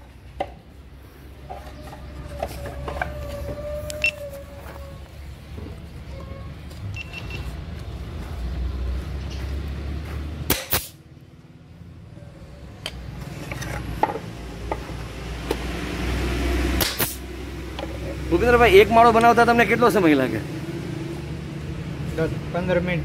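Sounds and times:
sharp knocks and clicks on wood: 0.4 - 0.6, 12.9 - 15.6.

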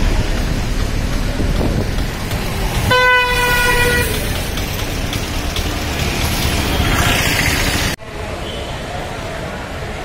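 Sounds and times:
street traffic rumble: 0.0 - 10.0
vehicle horn honking: 2.9 - 4.1.

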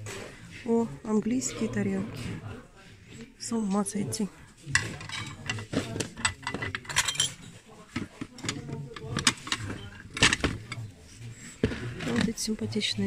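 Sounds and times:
background voices: 1.4 - 13.0
ceramic plates clinking: 4.7 - 10.9.

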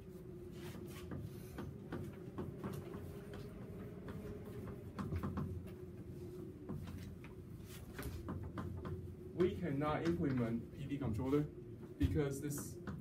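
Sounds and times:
low room hum: 0.0 - 13.0
chalk tapping and scratching: 0.5 - 3.4.

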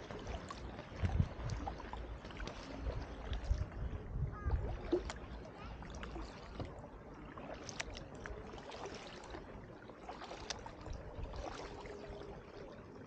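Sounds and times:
paddle dipping and dripping: 0.0 - 13.0.

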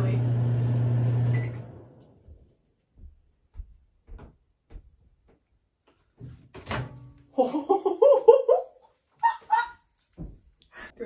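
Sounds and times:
woman laughing: 7.4 - 9.8.

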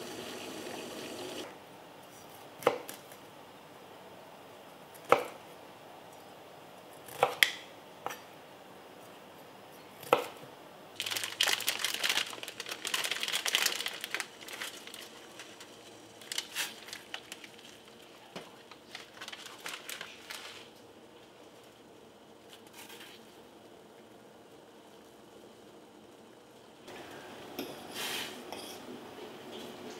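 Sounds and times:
plastic packet crinkling and tearing: 11.0 - 20.8.

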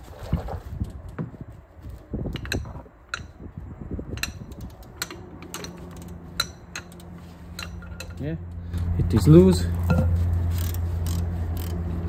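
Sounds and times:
low steady hum: 0.1 - 12.0
ratchet metal clicks: 2.4 - 3.4, 4.1 - 8.2, 10.5 - 11.8.

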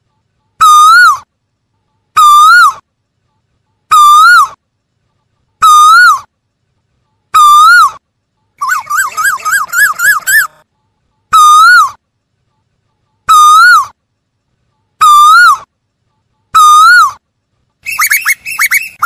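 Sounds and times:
koel calling: 0.6 - 1.3, 8.6 - 10.6, 11.3 - 12.0, 13.3 - 14.0, 15.0 - 15.7, 16.5 - 17.2, 17.8 - 19.0.

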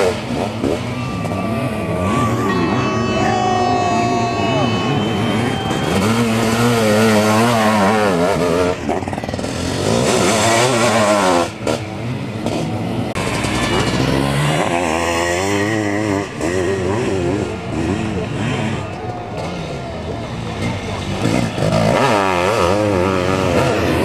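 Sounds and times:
motocross engines revving: 0.0 - 24.0.

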